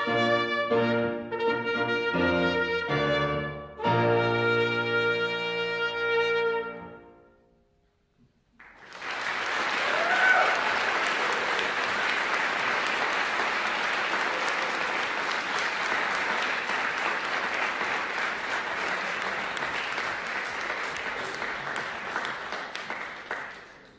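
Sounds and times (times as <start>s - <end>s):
audience applauding: 8.6s - 23.9s.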